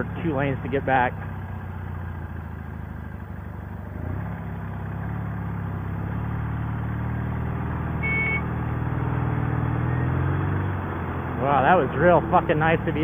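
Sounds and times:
motorcycle engine running: 0.0 - 9.9
short high beep: 8.0 - 8.5.

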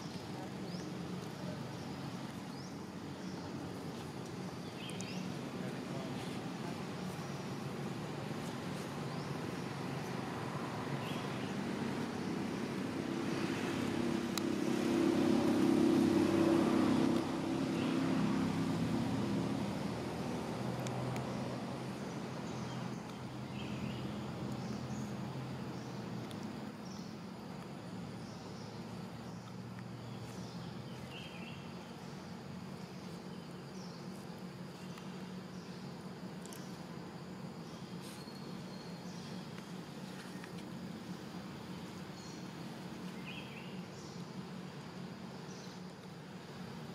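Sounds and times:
vehicle engine running: 0.0 - 35.9
steady low hum: 0.0 - 46.9.

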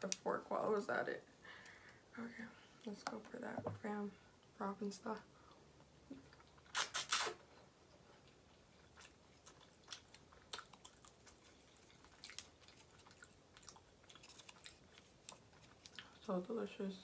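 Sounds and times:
chewing clicks: 8.2 - 16.1.

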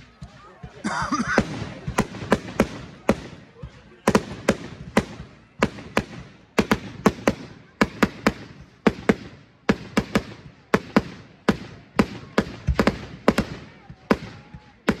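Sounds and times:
firework bangs with echo: 1.2 - 15.0.

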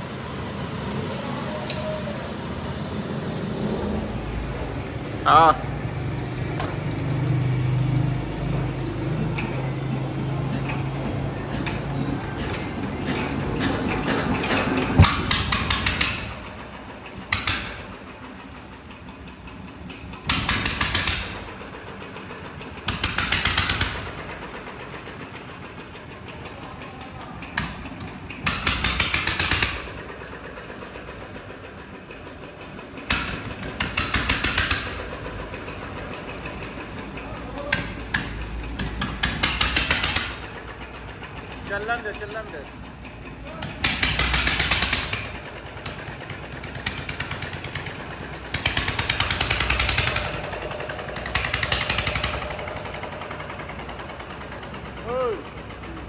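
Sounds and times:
diesel engine humming: 0.0 - 56.0
rapid regular knocking: 13.1 - 18.0, 42.9 - 55.0.

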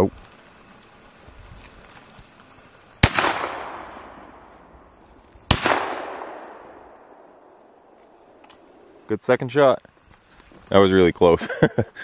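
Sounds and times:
shotgun shots echoing: 3.0 - 4.5, 5.5 - 9.0.

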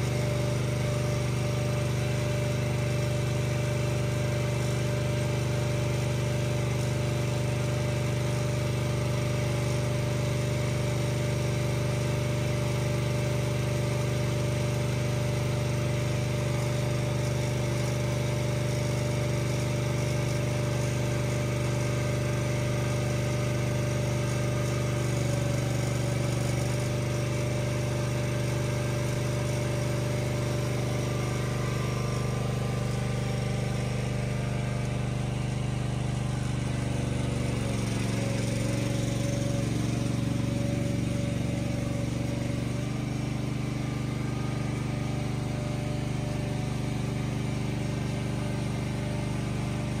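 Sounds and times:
engine low hum: 0.0 - 4.5, 22.5 - 50.0.

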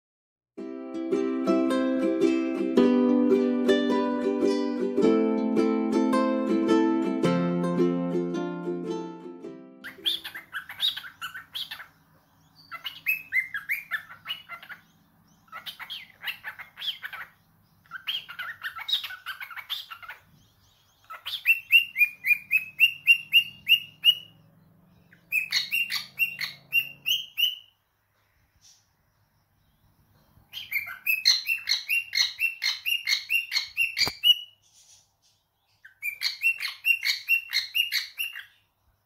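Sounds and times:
cockatiel whistled notes: 9.8 - 11.9, 21.2 - 24.3, 25.3 - 27.7, 30.6 - 34.5, 35.9 - 38.5
cockatiel warbling and chirping: 9.8 - 27.8, 30.4 - 34.9, 35.8 - 38.6.

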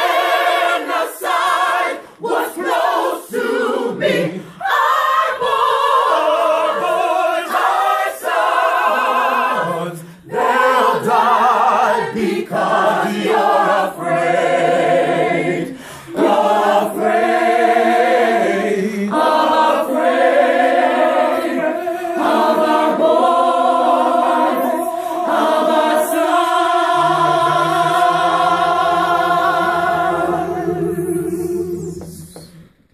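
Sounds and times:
mixed choir singing: 0.0 - 32.9.

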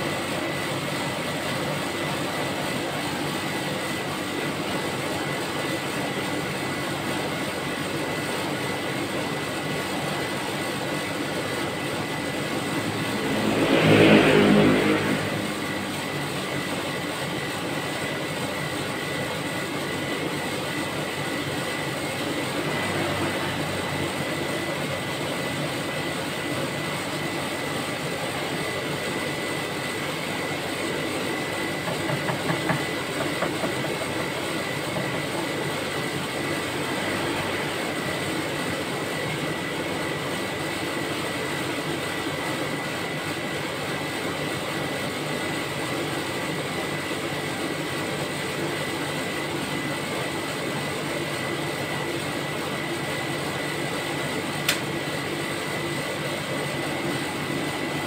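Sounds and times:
compressor whooshing hum: 0.0 - 58.0
thin high whine: 10.2 - 17.1.

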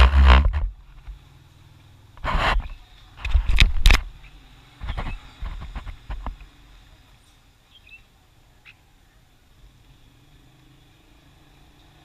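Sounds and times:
sharp knocks and scraping: 0.0 - 1.2, 2.2 - 6.6
faint bird chirps: 7.1 - 9.5.

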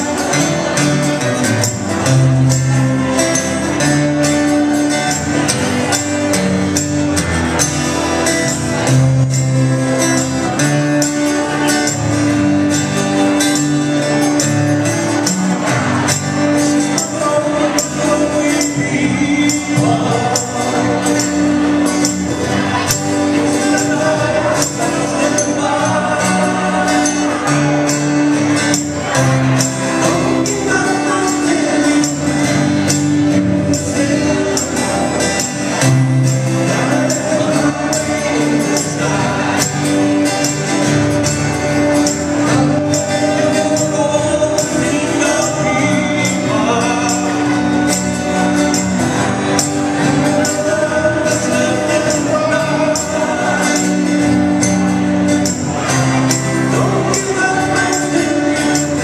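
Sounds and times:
acoustic guitars strumming: 0.0 - 59.0
cajon beat: 0.0 - 59.0
men singing in harmony: 15.2 - 59.0.

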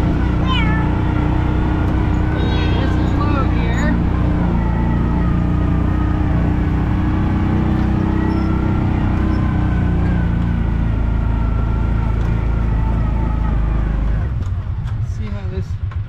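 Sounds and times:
utility vehicle engine hum: 0.0 - 16.0.

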